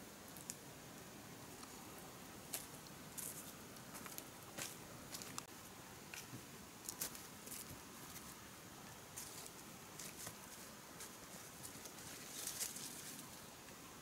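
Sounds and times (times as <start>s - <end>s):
footsteps rustling through dry leaves: 9.2s - 13.4s.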